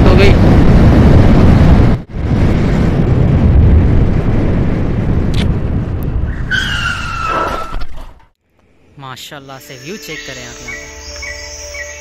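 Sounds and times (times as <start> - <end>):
wind rumbling on microphone: 0.0 - 8.2.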